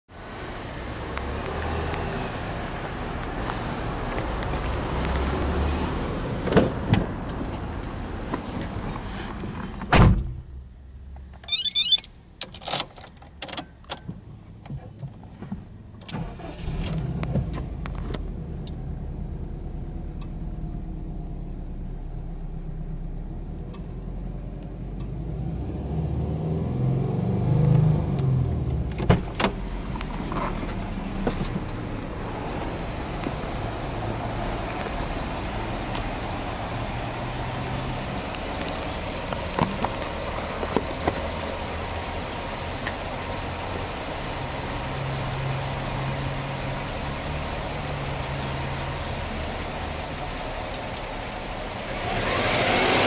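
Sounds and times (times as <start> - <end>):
steady outdoor rumble: 0.1 - 53.0
car engine starting and revving: 0.2 - 9.8, 15.8 - 53.0
loud thud: 9.9 - 10.5.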